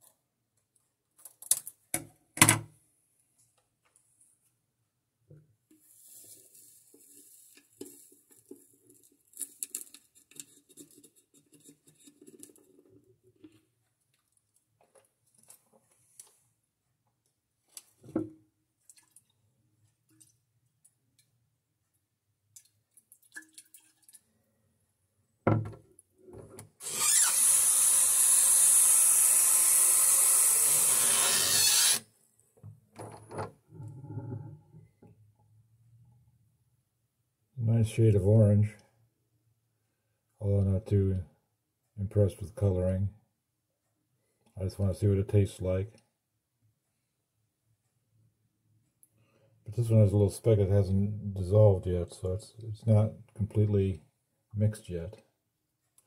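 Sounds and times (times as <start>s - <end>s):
knocks on counter: 25.5s - 25.8s.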